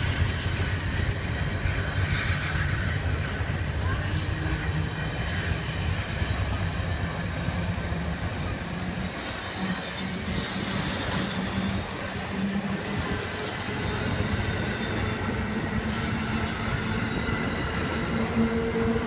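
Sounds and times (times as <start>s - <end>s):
train wheels rumbling on rail: 0.0s - 19.0s
high-pitched wheel squeals: 9.0s - 17.7s.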